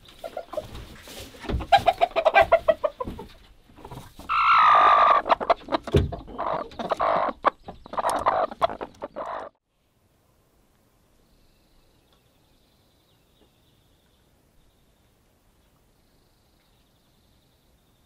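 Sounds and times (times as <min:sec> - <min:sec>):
chickens clucking and squawking: 0:00.0 - 0:09.6.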